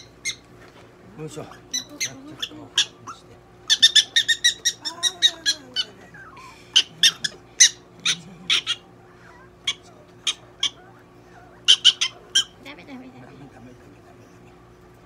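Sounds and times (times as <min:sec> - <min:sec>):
prairie dog squeaking calls: 0:00.0 - 0:00.4, 0:01.4 - 0:12.7.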